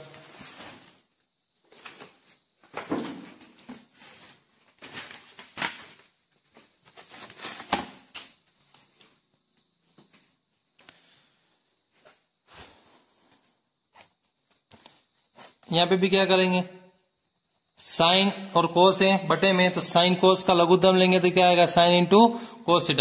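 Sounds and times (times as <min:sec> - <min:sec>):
paper rustling near microphone: 0:00.0 - 0:09.2.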